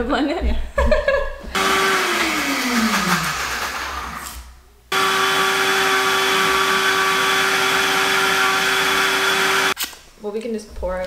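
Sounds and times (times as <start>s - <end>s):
blender motor running: 1.6s - 4.3s, 4.9s - 9.8s.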